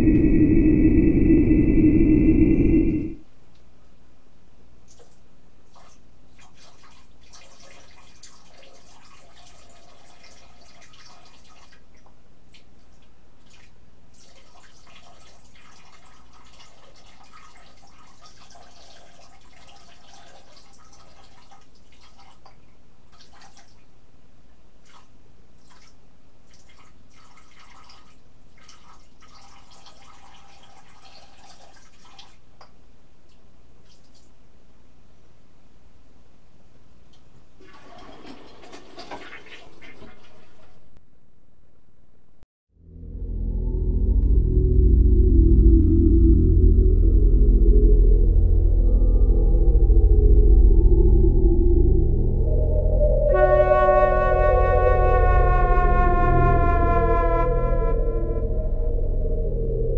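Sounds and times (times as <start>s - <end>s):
low electrical hum: 0.0s - 37.7s, 40.7s - 59.9s
water splashing in a sink: 4.8s - 23.9s, 24.8s - 32.7s, 37.6s - 40.9s.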